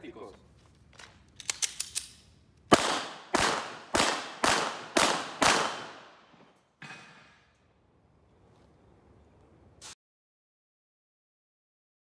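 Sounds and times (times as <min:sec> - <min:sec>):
handgun shots: 0:01.4 - 0:06.2.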